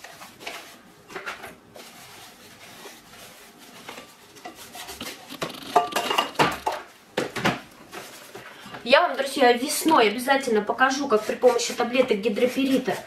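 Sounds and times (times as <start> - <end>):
soft handling rustle: 0.0 - 5.4
sponge brush dabbing in foamy liquid: 1.6 - 6.4, 9.2 - 13.0
brush knocking against glass: 5.0 - 6.8.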